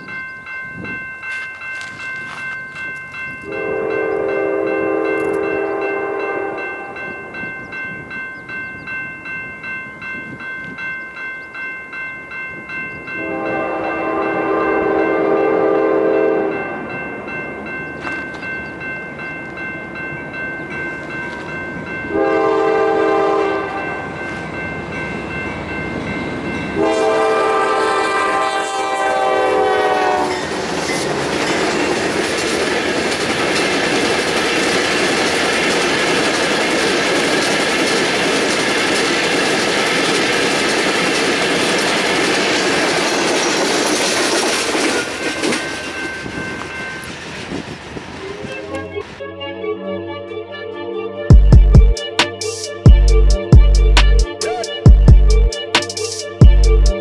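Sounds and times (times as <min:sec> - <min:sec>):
train passing with loud rush: 0:00.0 - 0:50.6, 0:51.3 - 0:57.0
locomotive horn blasts: 0:03.4 - 0:07.2, 0:13.2 - 0:16.9, 0:22.1 - 0:24.1, 0:26.8 - 0:30.5
wheels clattering on rail joints: 0:30.3 - 0:49.2.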